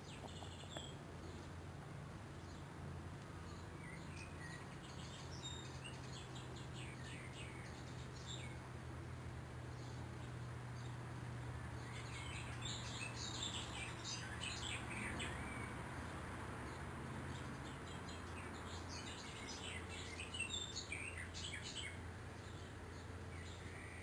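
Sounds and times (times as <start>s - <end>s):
small birds chirping: 0.0s - 24.0s
steady low hum: 0.0s - 24.0s.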